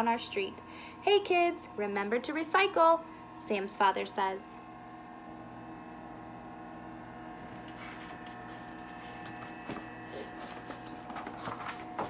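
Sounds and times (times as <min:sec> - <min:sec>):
steady background hum: 0:00.0 - 0:12.0
book pages rustling: 0:07.4 - 0:12.0.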